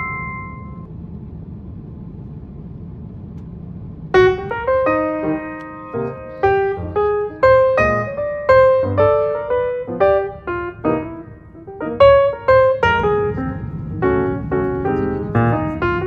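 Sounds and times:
piano music: 0:00.0 - 0:00.9, 0:04.1 - 0:16.0
airliner cabin rumble: 0:00.0 - 0:16.0.

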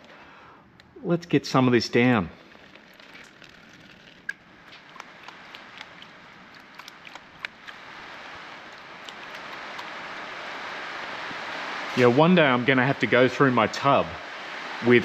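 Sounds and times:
small clicks and drips: 0:02.4 - 0:10.0
water splashing in a pan: 0:02.5 - 0:10.0.

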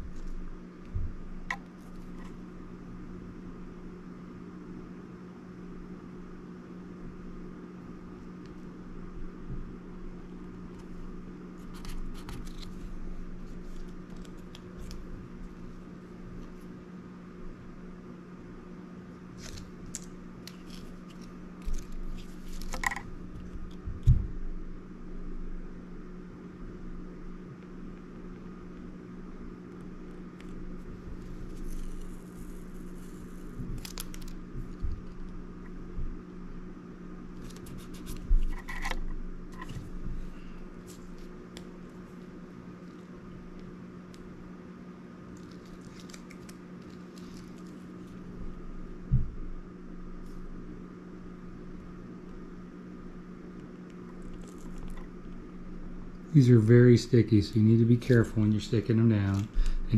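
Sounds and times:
steady low hum: 0:00.0 - 0:59.9
keypads peeled and pressed: 0:11.6 - 0:12.8, 0:13.4 - 0:15.1.

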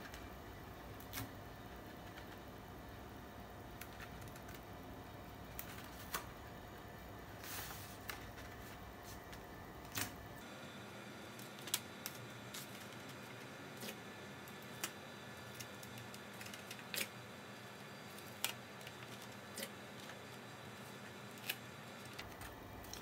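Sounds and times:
room noise hiss: 0:00.0 - 0:23.0.

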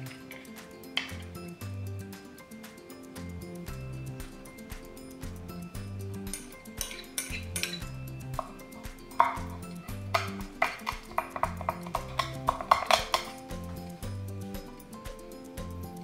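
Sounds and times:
soft background music: 0:00.0 - 0:16.0
metal spoon scraping glass bowl: 0:06.2 - 0:13.4
knife chopping on wooden board: 0:09.2 - 0:13.4.

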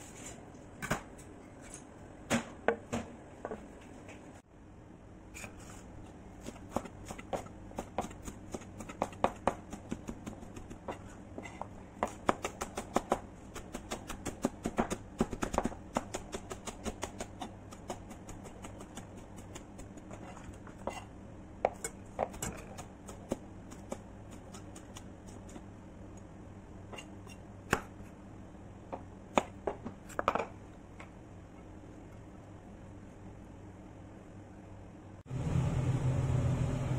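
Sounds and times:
steady low hum: 0:00.0 - 0:36.9.

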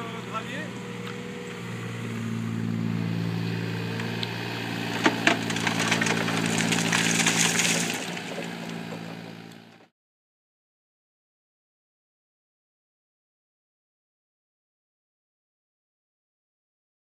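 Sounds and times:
excavator diesel engine running: 0:00.0 - 0:09.9
earth and stones rattling through screen: 0:05.3 - 0:08.4.

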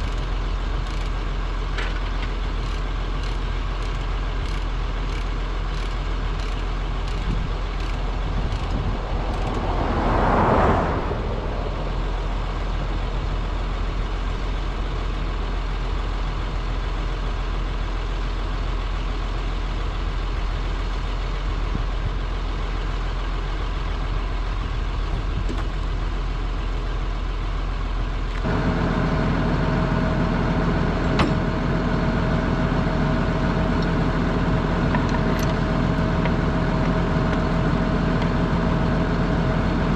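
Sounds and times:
diesel engine idling: 0:00.0 - 0:39.9
steady hum: 0:05.8 - 0:14.7
vehicle passing by: 0:07.6 - 0:13.9.

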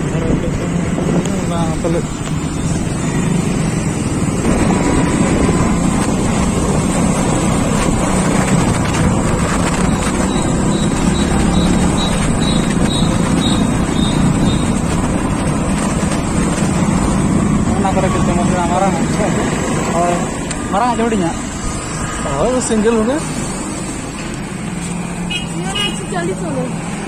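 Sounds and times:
moving vehicle running noise: 0:00.0 - 0:27.0
wind buffeting microphone: 0:03.7 - 0:17.7.

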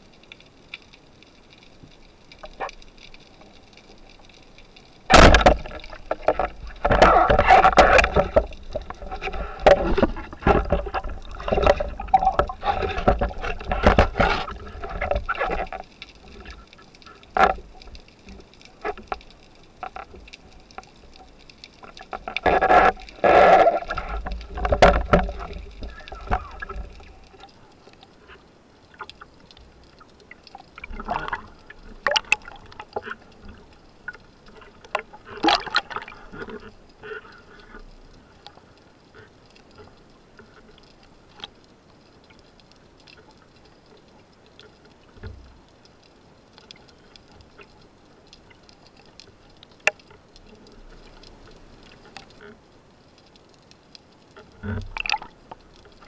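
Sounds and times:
water splashing: 0:00.0 - 0:52.7, 0:53.3 - 0:56.0
underwater rushing water: 0:00.0 - 0:56.0
sharp clicks and knocks: 0:05.1 - 0:16.6.

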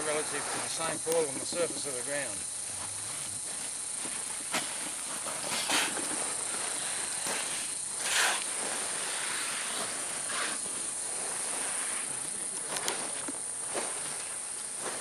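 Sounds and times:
insect chorus: 0:00.0 - 0:15.0
scrapes on sand: 0:04.5 - 0:12.2.

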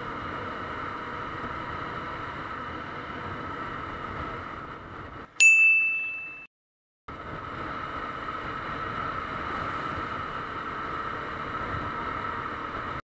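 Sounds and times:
motorcycle engine at speed: 0:00.0 - 0:05.3, 0:07.1 - 0:13.0
high bell-like ding: 0:05.4 - 0:06.5
wind noise: 0:07.1 - 0:13.0.

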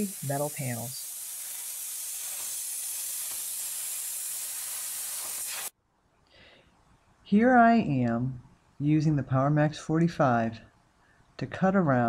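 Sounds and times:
plasma cutter hissing: 0:00.0 - 0:05.7.

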